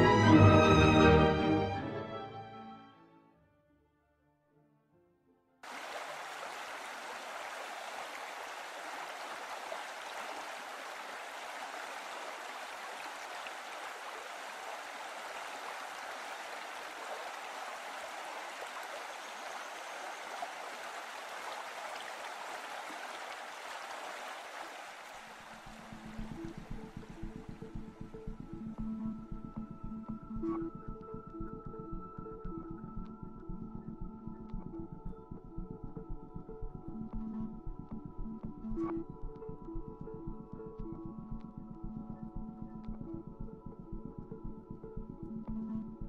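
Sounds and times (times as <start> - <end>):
music: 0.0 - 5.6, 25.6 - 46.0
river running over rocks: 5.7 - 25.9.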